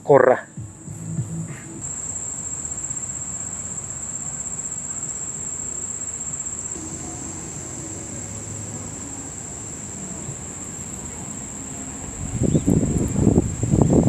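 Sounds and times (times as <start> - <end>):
crickets chirping: 0.0 - 14.0
low background rumble: 0.5 - 3.9.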